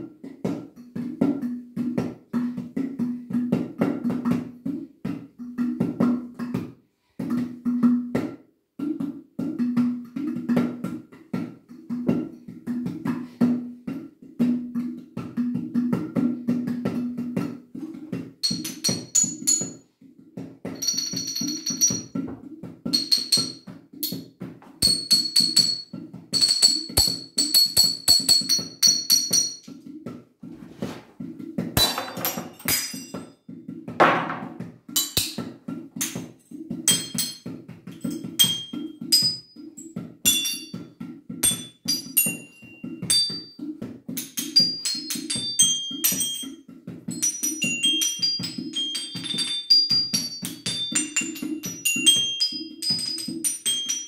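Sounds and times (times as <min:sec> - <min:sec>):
vase ringing chime-like tones: 0:20.8 - 0:22.2, 0:41.4 - 0:43.5, 0:44.4 - 0:46.5, 0:47.2 - 0:54.0
vase shattering crash: 0:31.8 - 0:33.1
ceramic shards pinging: 0:31.8 - 0:33.2.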